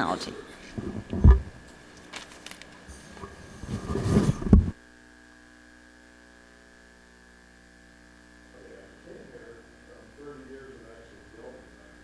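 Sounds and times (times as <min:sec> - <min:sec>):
electrical mains hum: 0:00.0 - 0:12.0
knocks and rustles on microphone: 0:00.7 - 0:01.6, 0:03.2 - 0:04.8.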